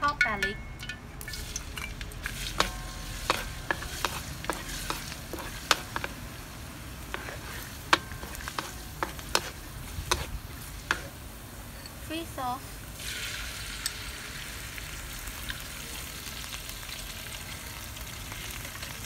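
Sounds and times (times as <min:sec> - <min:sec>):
garlic sizzling in a wok: 0:01.2 - 0:19.0
wooden spatula clacking on pan: 0:02.5 - 0:06.2, 0:07.1 - 0:10.3.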